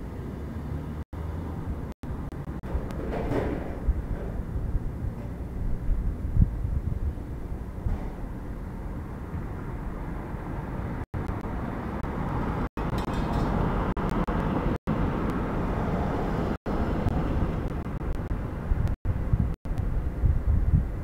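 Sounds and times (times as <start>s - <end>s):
vehicle passing: 0.0s - 3.0s, 8.4s - 18.8s
street traffic rumble: 0.0s - 21.0s.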